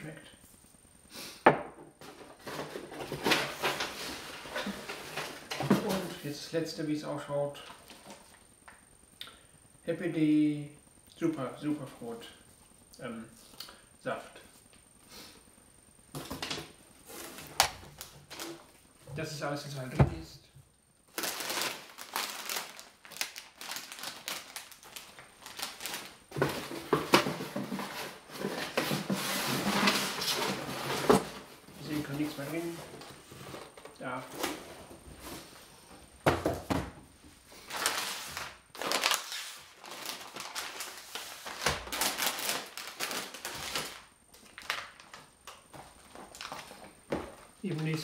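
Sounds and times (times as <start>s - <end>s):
products knocking on table: 1.4s - 1.9s, 36.2s - 37.0s
rummaging in cardboard box: 2.0s - 6.2s, 21.2s - 35.7s, 37.7s - 44.8s
plastic bag crinkling: 21.1s - 31.4s, 37.6s - 46.9s.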